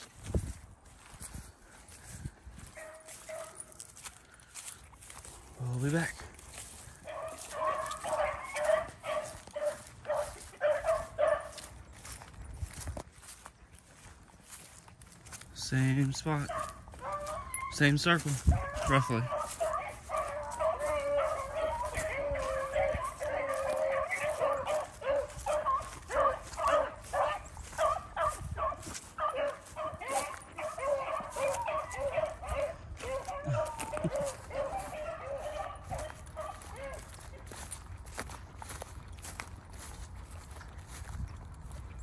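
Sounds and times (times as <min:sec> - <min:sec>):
beagles baying: 0:02.8 - 0:04.5, 0:06.5 - 0:12.0, 0:16.2 - 0:37.8.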